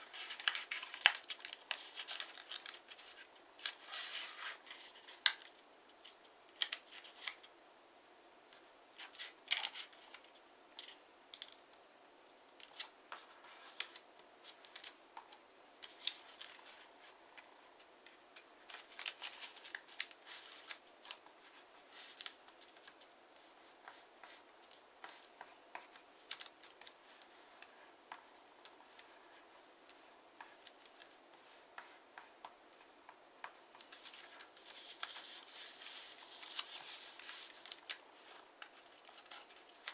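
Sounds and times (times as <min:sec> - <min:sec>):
paper being folded: 0:00.0 - 0:07.5, 0:15.8 - 0:17.5, 0:18.3 - 0:23.1, 0:33.8 - 0:39.9.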